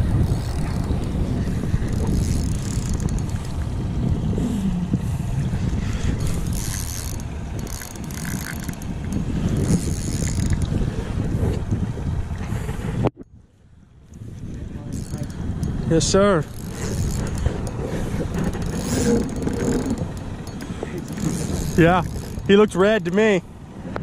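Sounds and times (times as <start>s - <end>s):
fishing reel squeaking and grinding: 0.0s - 1.2s, 1.9s - 3.5s, 6.2s - 10.7s, 14.9s - 23.1s
wind buffeting microphone: 0.0s - 24.0s.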